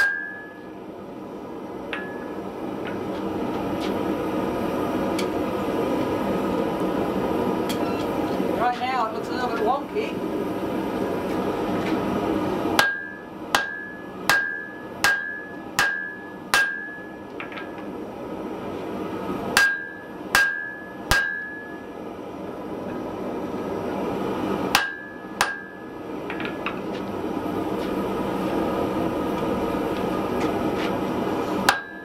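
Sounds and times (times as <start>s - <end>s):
hammer blows on iron on anvil: 0.0s - 0.6s, 12.8s - 17.2s, 19.6s - 21.8s, 24.7s - 25.9s, 31.6s - 32.0s.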